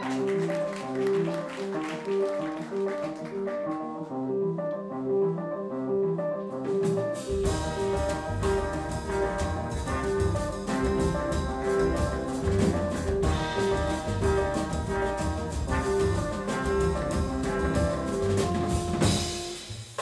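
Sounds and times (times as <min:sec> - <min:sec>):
jazz band playing: 0:00.0 - 0:20.0
deep bass: 0:07.3 - 0:19.5.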